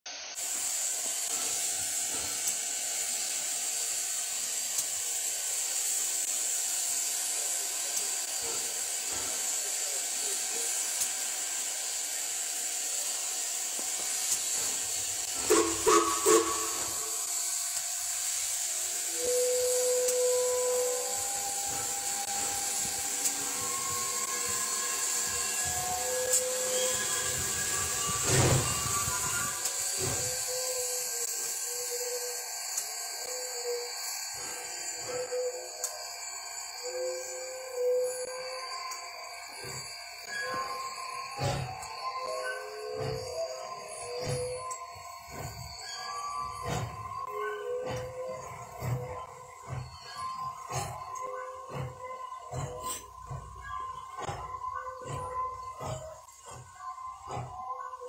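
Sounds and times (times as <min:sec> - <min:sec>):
steam locomotive hissing: 0:00.1 - 0:58.0
locomotive whistle toots: 0:13.8 - 0:58.0.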